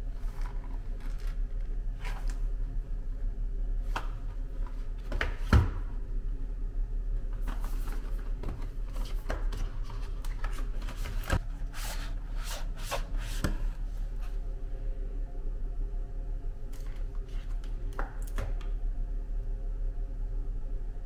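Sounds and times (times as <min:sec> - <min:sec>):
steady low hum: 0:00.0 - 0:21.0
paper and boxes rustling: 0:07.3 - 0:13.7.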